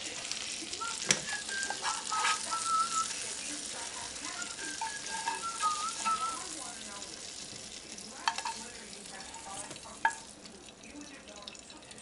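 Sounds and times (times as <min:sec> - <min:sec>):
shrimp sizzling in a skillet: 0:00.0 - 0:12.0
spatula clicking against pan: 0:08.2 - 0:08.6, 0:09.7 - 0:10.2.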